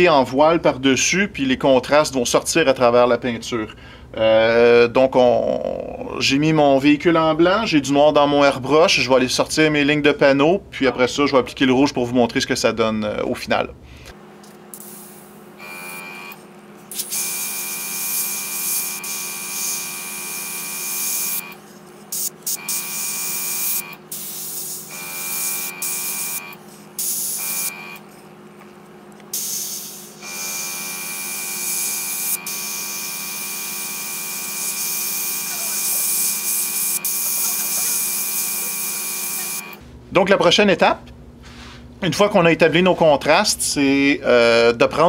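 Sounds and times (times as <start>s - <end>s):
steady low hum: 0.0s - 45.0s
airbrush hissing with whistle: 14.8s - 28.3s, 29.3s - 39.8s.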